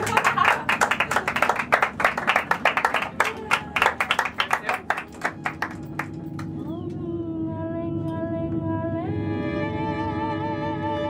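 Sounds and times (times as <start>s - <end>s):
people clapping: 0.0s - 6.6s.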